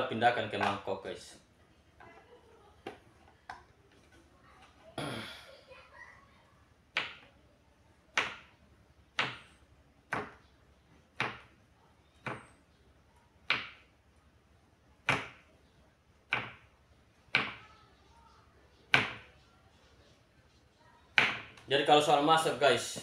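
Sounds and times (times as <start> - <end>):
knife chopping on wooden board: 10.1 - 10.4, 11.2 - 11.5, 16.3 - 16.6, 21.2 - 21.5.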